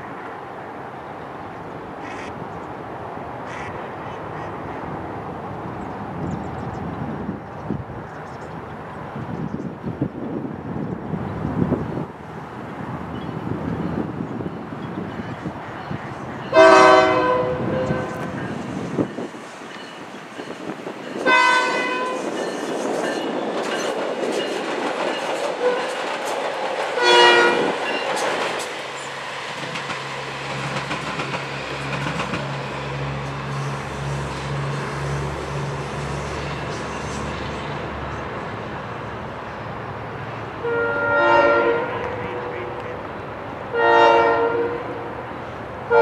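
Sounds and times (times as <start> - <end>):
train running on track: 0.0 - 46.0
train horn: 16.5 - 18.5, 21.2 - 22.3, 25.6 - 26.0, 27.0 - 27.9, 40.6 - 42.9, 43.7 - 45.2.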